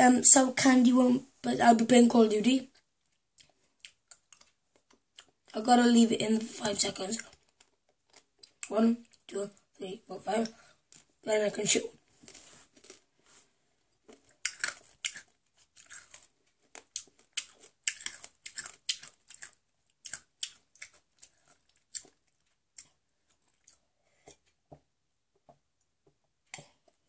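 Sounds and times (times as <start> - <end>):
crunching hard candy: 12.3 - 13.1, 14.0 - 23.8.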